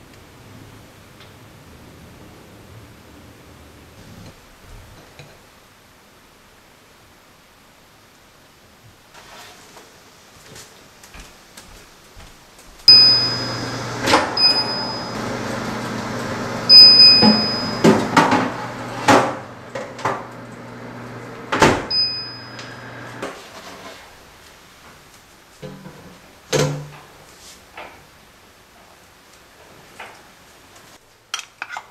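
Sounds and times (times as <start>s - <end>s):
oven humming: 12.8s - 23.4s
short high beeps: 12.9s - 13.7s, 14.4s - 15.2s, 16.7s - 18.0s, 21.9s - 22.6s.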